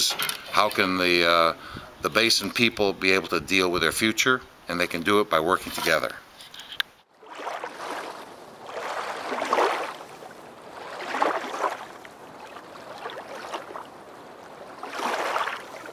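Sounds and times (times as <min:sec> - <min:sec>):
water lapping: 0:07.1 - 0:15.9.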